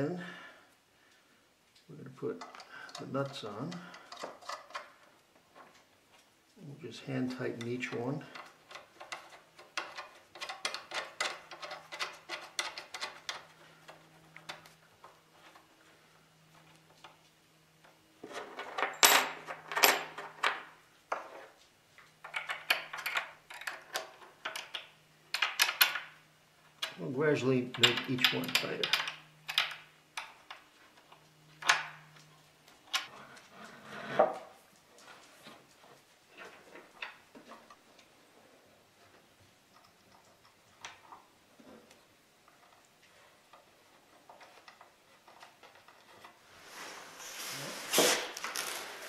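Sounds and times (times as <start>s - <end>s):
metal clicks and scrapes of bolts: 1.8s - 6.3s, 7.3s - 15.7s, 17.8s - 27.1s, 27.7s - 33.5s
nuts clicking on steel bolts: 7.6s - 14.7s, 22.2s - 26.2s, 27.7s - 30.6s.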